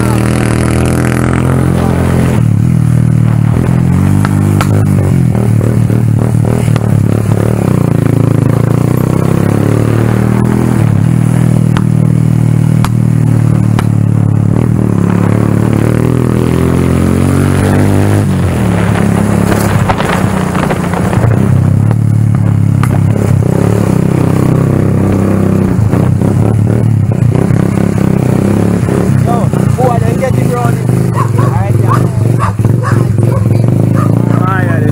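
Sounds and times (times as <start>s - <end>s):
motorcycle engine running: 0.0s - 34.9s
knocks and rattles from rough road: 3.2s - 9.2s, 11.3s - 14.6s, 18.3s - 23.7s.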